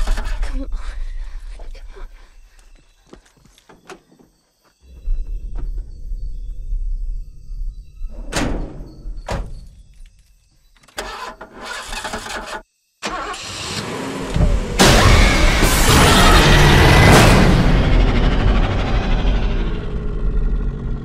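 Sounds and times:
truck engine cranking: 10.8 - 18.0
loud dense music hit: 14.4 - 19.9.

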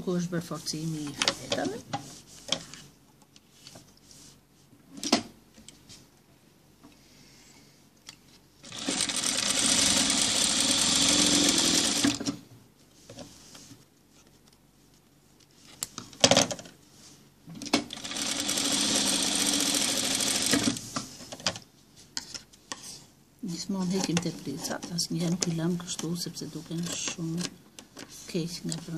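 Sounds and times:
sewing machine running: 8.6 - 12.3, 17.9 - 20.8.

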